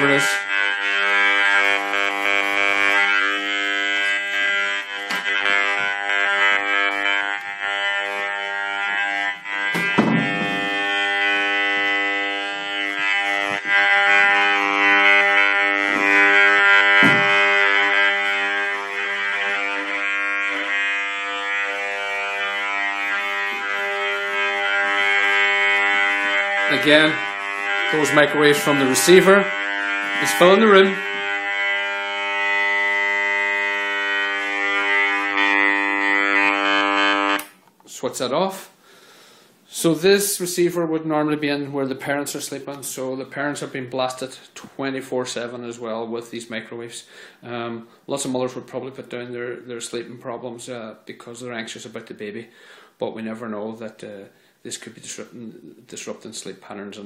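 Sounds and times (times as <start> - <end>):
detector speaker buzzing: 0.0 - 57.0
brief knock: 9.8 - 10.6, 17.0 - 17.3.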